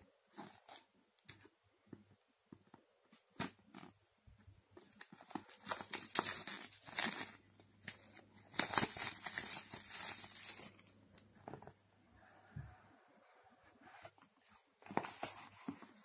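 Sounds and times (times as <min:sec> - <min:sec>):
cellophane crinkling: 0:04.8 - 0:10.9.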